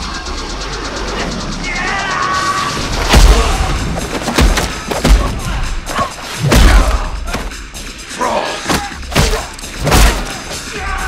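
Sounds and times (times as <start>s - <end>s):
punch and kick impacts: 6.4s - 7.0s.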